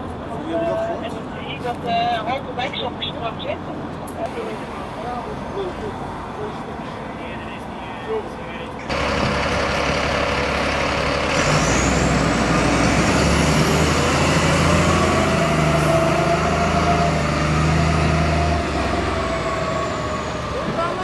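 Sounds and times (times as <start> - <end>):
diesel engine revving: 8.9 - 21.0.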